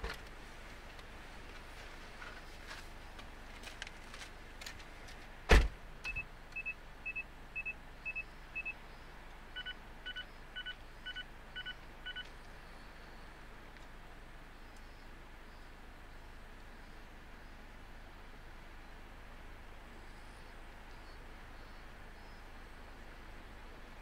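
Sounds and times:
sharp thump: 5.5s - 5.8s
short electronic beeps: 6.1s - 8.8s, 9.6s - 12.3s.

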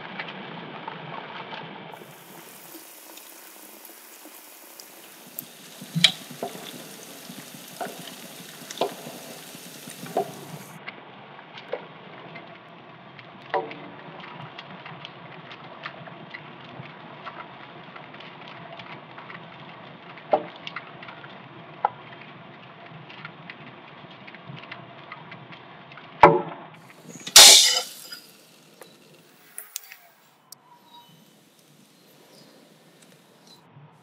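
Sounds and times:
water boiling in a pot: 2.0s - 10.8s, 26.9s - 30.0s, 30.8s - 33.5s.

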